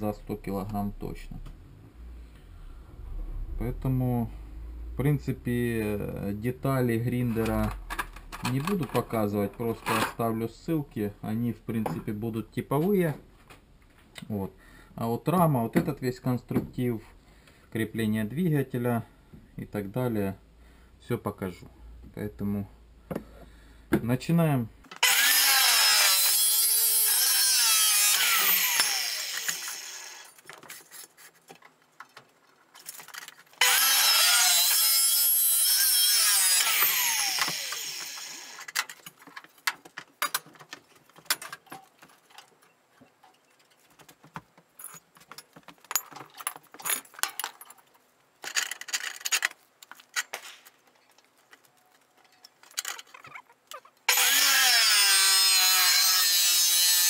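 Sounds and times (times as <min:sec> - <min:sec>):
saw motor winding down: 0:25.0 - 0:30.3, 0:33.6 - 0:38.7, 0:54.1 - 0:57.0
chop saw grinding through steel: 0:25.0 - 0:30.4, 0:33.6 - 0:38.8, 0:54.1 - 0:57.0.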